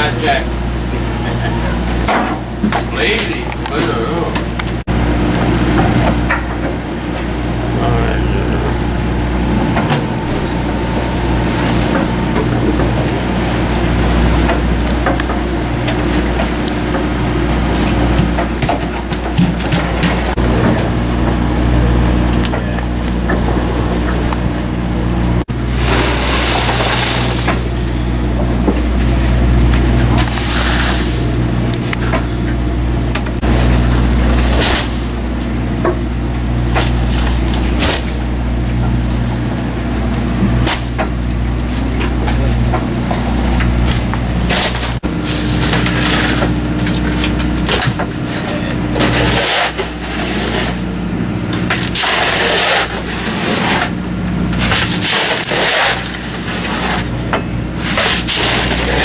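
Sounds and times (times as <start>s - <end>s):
boat engine humming: 0.0s - 59.0s
ice and fish thudding into cooler: 25.9s - 27.9s, 34.4s - 35.1s, 36.8s - 38.3s, 54.6s - 56.4s, 57.9s - 59.0s.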